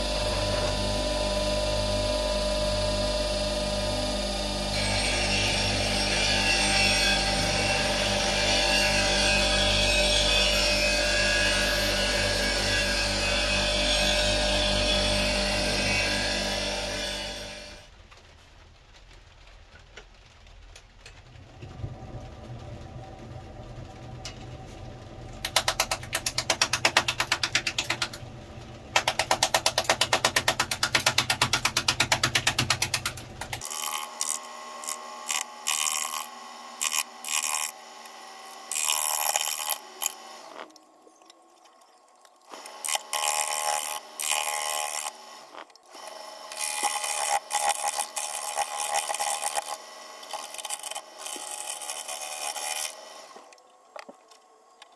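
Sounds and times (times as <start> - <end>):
wood lathe motor hum: 0.0 - 17.8, 21.4 - 40.7, 42.5 - 54.1
gouge scraping spinning wood: 11.1 - 17.6, 21.4 - 40.6, 42.6 - 53.4.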